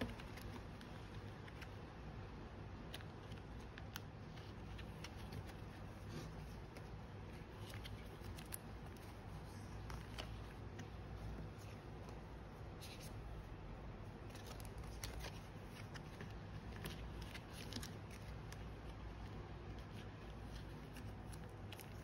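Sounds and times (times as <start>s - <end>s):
steady soft hiss: 0.0s - 22.0s
plastic sleeves crinkling: 2.8s - 22.0s.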